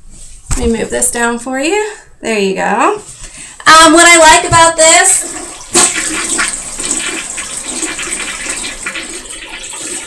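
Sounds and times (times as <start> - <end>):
toilet flushing: 4.0 - 10.0.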